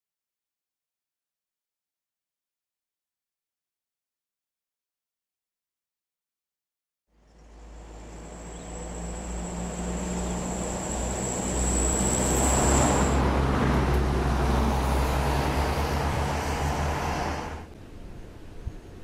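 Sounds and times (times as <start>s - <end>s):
heavy machinery diesel engines rumbling: 7.4s - 18.4s.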